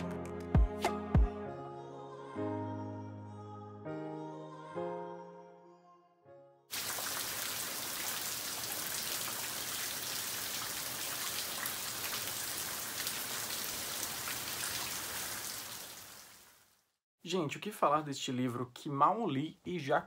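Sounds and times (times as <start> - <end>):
steady rain falling: 6.7 - 16.8.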